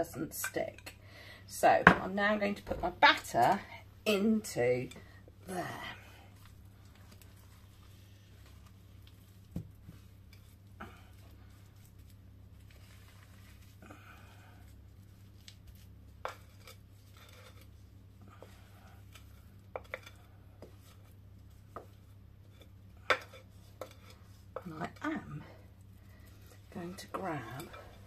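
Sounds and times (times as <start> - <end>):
spatula scraping bowl: 16.2 - 28.0.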